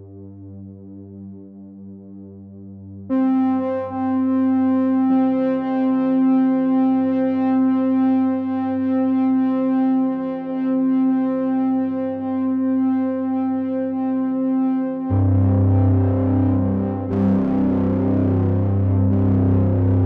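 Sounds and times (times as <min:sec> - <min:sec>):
sustained synthesizer tones: 0:15.1 - 0:20.0.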